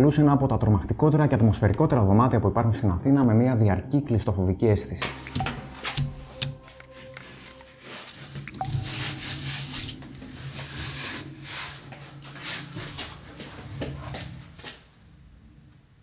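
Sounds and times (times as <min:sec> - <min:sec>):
low steady hum: 0:00.0 - 0:16.0
hissing rustling noise: 0:05.8 - 0:14.8.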